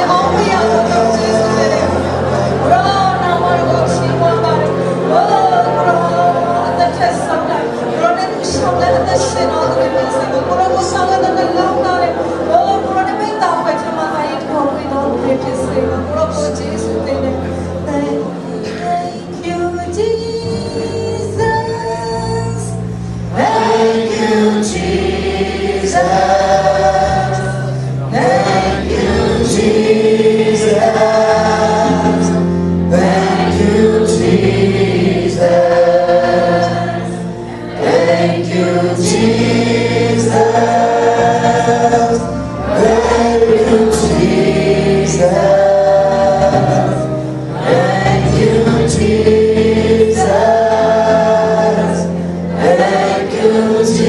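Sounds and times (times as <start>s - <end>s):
congregation singing: 0.0s - 54.0s
instrumental accompaniment: 0.0s - 54.0s.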